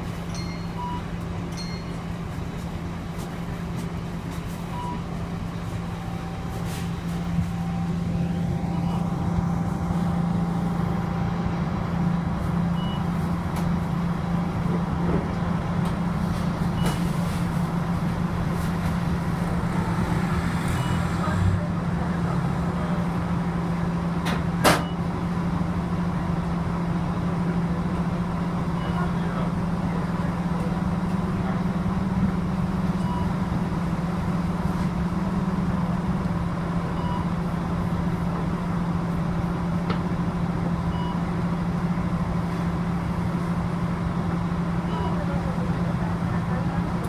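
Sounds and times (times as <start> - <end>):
bus engine idling: 0.0 - 47.0
faint short beeps: 12.8 - 13.1, 28.8 - 29.1, 44.9 - 45.2.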